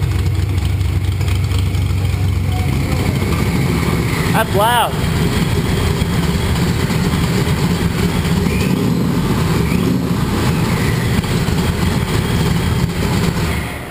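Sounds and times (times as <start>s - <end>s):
car engine idling: 0.0s - 13.9s.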